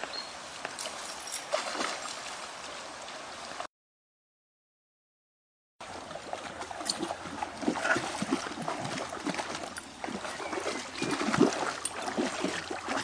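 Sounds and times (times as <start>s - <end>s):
dog splashing through water: 1.3s - 2.5s, 5.9s - 13.0s.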